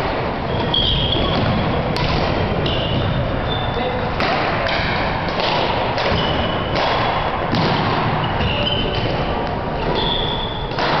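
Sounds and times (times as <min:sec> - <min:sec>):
loud hall din: 0:00.0 - 0:11.0
shoe squeaks: 0:00.4 - 0:01.9, 0:02.5 - 0:04.0, 0:06.1 - 0:06.8, 0:08.1 - 0:10.8
shuttlecock hits: 0:04.2 - 0:08.2, 0:10.7 - 0:11.0.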